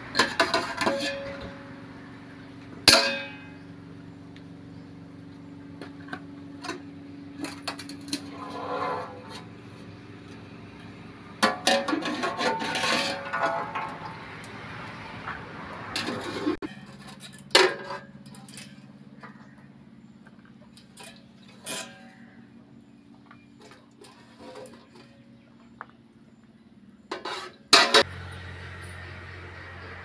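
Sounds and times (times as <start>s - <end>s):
metal scrape: 0.0s - 1.8s, 7.4s - 9.8s, 11.4s - 14.4s, 15.2s - 18.9s, 20.9s - 22.4s, 23.6s - 25.2s, 27.1s - 28.2s
ringing metal clang: 2.9s - 3.7s.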